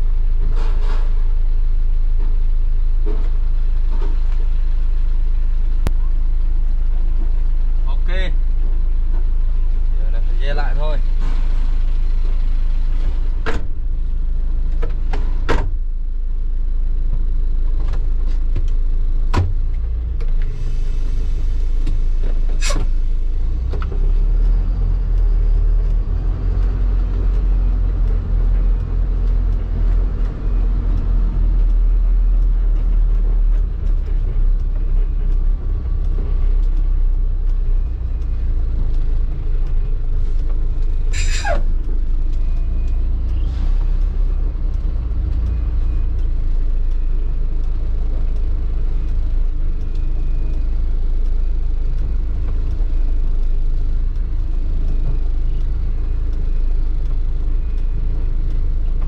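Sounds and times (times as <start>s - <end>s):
truck engine rumbling: 0.0s - 59.0s
brief falling squeal: 41.1s - 41.7s.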